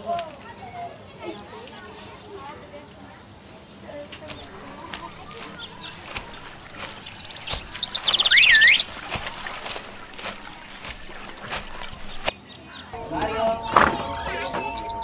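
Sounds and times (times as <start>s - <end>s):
bird singing high chirps: 4.4s - 9.0s, 12.0s - 15.0s.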